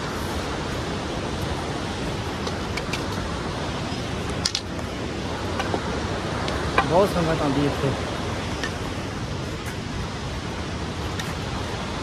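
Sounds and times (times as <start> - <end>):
rushing outdoor noise: 0.0 - 12.0.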